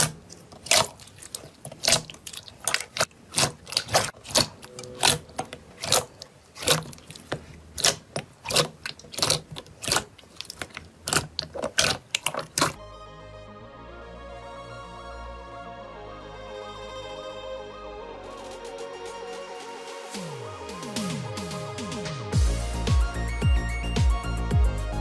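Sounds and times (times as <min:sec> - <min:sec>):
slime squeezed sticky clicks: 0:00.0 - 0:12.8
music: 0:12.8 - 0:25.0.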